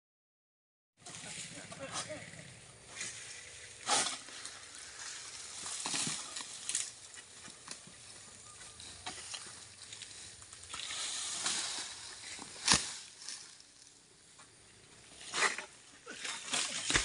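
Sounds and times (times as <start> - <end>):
palm fronds rustling: 1.0 - 17.0
small crackles: 1.5 - 14.6.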